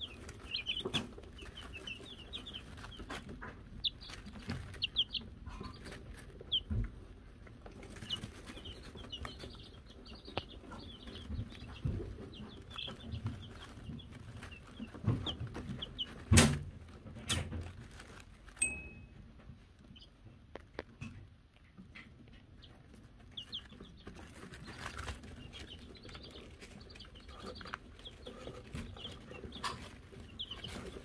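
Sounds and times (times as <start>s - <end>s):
chicks peeping: 0.0s - 31.0s
hand bell clang: 18.6s - 19.1s.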